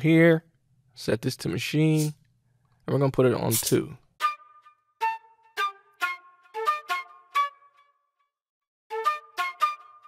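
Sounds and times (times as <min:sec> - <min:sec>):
flute notes: 0:04.2 - 0:08.0, 0:08.9 - 0:10.0.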